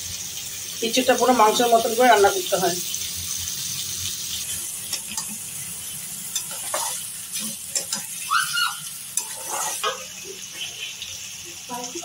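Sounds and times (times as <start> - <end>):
curry sizzling in a pan: 0.0 - 12.0
metal spatula scraping a pan: 4.4 - 8.3, 8.9 - 10.8.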